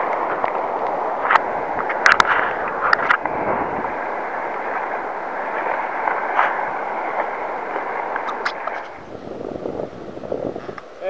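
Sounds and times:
surf washing in: 0.0s - 11.0s.

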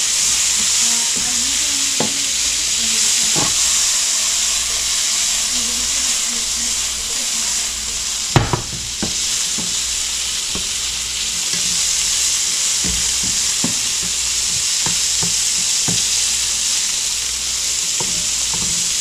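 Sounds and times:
fish sizzling in a frying pan: 0.0s - 19.0s
spatula knocking and scraping pan: 3.2s - 3.9s, 5.2s - 16.7s, 17.9s - 19.0s.

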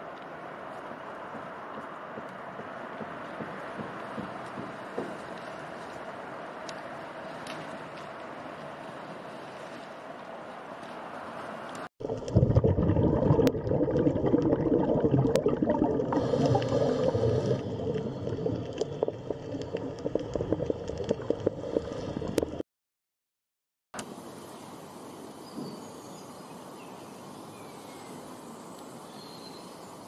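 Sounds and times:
underwater bubbling and crackling: 12.0s - 22.6s
faint outdoor hiss: 24.0s - 30.0s.

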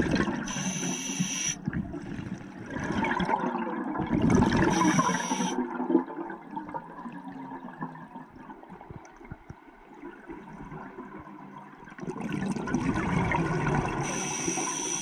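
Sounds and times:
faint underwater noise: 0.0s - 5.7s, 13.1s - 15.0s
scuba exhaust bubbles: 0.0s - 8.0s, 12.0s - 15.0s.

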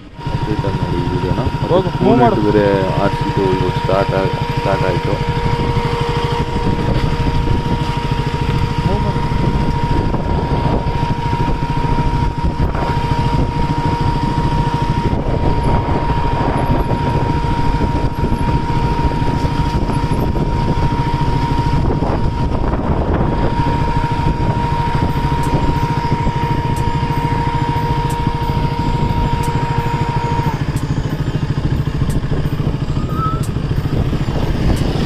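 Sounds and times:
motorcycle engine running: 0.0s - 35.0s
wind on microphone: 0.0s - 35.0s.

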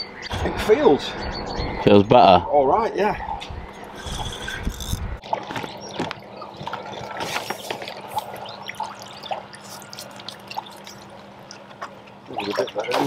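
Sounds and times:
fish splashing in water: 5.2s - 13.0s.

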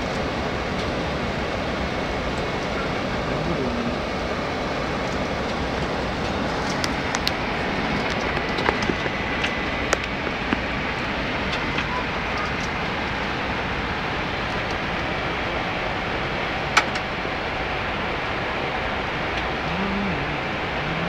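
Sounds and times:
airflow and engine noise: 0.0s - 21.0s.

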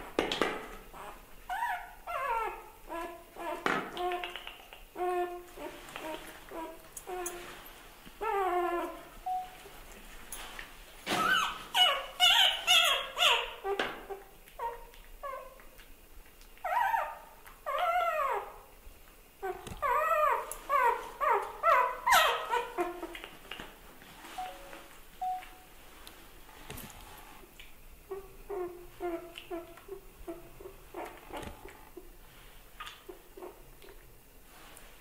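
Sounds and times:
puppy whimpering and yelping: 1.0s - 4.2s, 5.0s - 7.6s, 8.2s - 9.6s, 11.2s - 15.6s, 16.6s - 18.6s, 19.4s - 23.2s.

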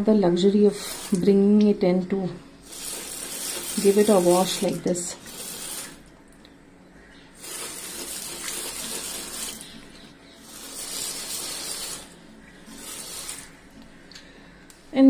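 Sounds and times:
water spraying onto leaves: 0.7s - 1.3s, 2.6s - 6.0s, 7.4s - 9.8s, 10.4s - 13.6s.

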